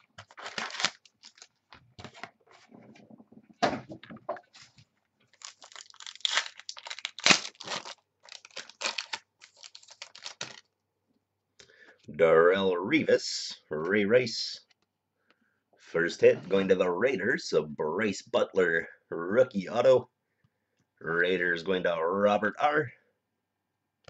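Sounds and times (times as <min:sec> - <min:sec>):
wrappers crinkling and ripping: 0:00.0 - 0:02.2, 0:04.6 - 0:10.7.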